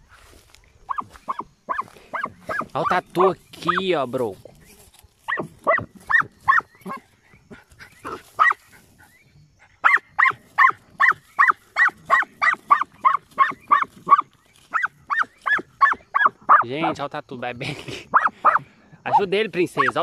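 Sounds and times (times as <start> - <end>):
dog barking rapidly: 0.9 - 3.9, 5.3 - 7.1, 8.0 - 8.7, 9.8 - 16.7, 18.1 - 20.0.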